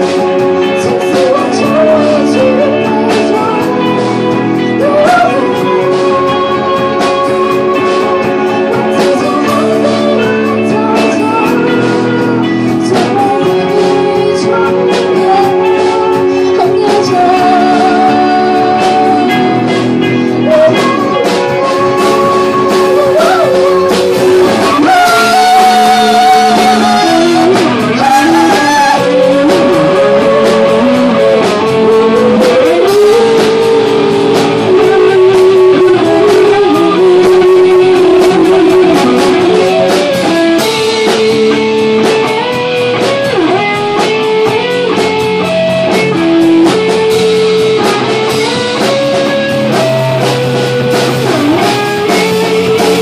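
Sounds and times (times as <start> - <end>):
drums: 0.0 - 53.0
electric guitars: 0.0 - 53.0
woman singing: 0.0 - 53.0.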